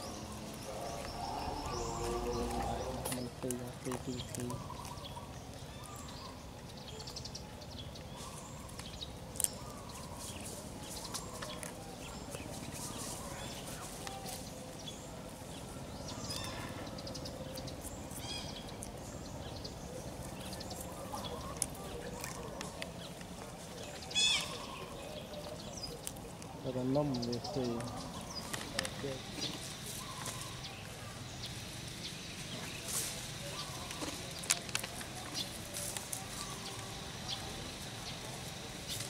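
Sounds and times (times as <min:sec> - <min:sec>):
high-pitched animal calls: 0:00.0 - 0:03.3, 0:24.1 - 0:25.0
outdoor background noise: 0:00.0 - 0:39.0.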